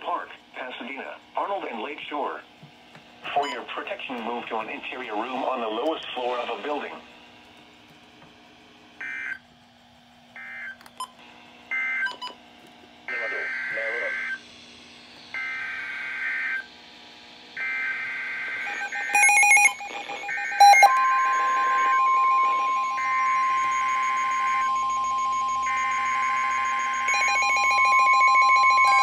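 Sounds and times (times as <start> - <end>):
steady warning alarm tone: 9.0 - 9.4, 10.4 - 11.1, 11.7 - 12.4, 13.0 - 14.4, 15.3 - 16.8, 17.5 - 29.0
buzzy digital data bursts: 17.6 - 29.0
rapid alert beeps: 18.6 - 29.0.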